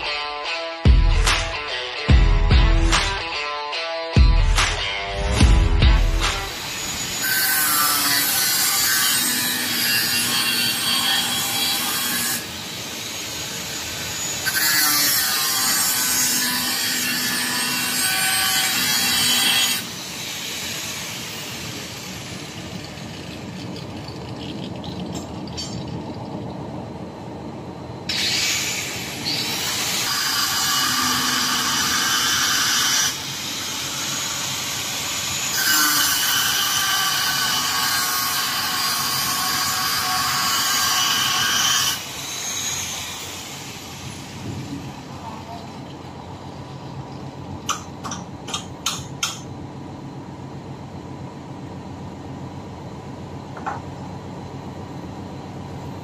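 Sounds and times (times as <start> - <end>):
angle grinder cutting metal: 4.6 - 23.8, 28.1 - 45.2.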